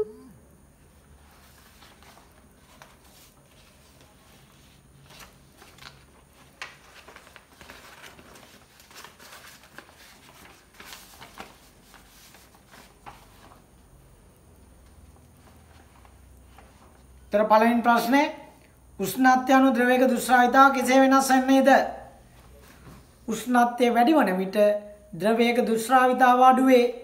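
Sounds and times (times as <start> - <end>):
low room hum: 0.0 - 27.0
paper rustling and clicking: 1.2 - 13.7.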